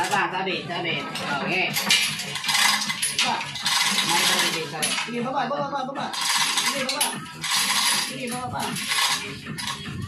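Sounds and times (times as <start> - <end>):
hoist chain rattling and clinking: 1.7 - 5.2, 6.1 - 10.0.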